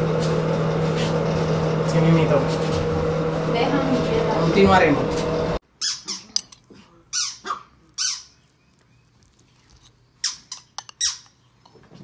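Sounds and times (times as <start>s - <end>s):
squeaky dog toy squeaks: 5.8s - 6.5s, 7.1s - 8.3s, 10.2s - 11.3s.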